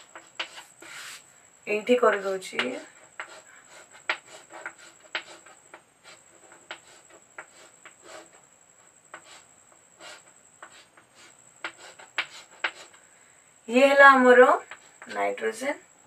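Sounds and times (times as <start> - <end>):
handwriting strokes: 0.0 - 1.2, 2.1 - 8.4, 9.1 - 13.0.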